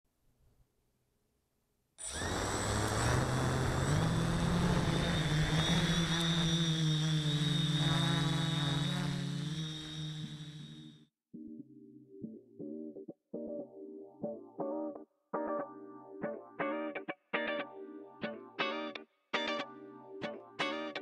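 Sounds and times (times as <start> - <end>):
quadcopter motors buzzing whine: 2.0 - 11.1.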